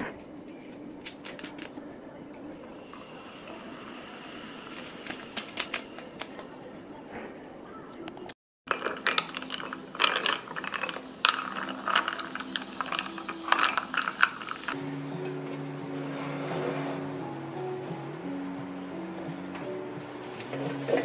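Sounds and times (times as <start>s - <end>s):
wooden spoon stirring in mug: 8.7s - 14.8s
soft music with low notes: 8.7s - 21.0s.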